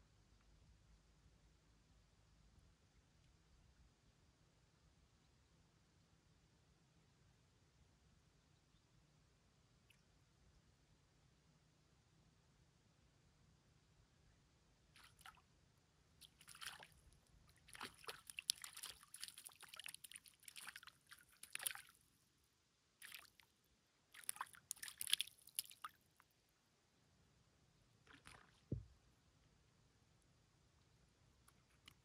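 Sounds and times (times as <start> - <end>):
fish splashing at water surface: 15.0 - 15.4, 16.2 - 16.9, 17.6 - 21.9, 23.0 - 23.4, 24.1 - 25.9
low thump: 28.7 - 28.9.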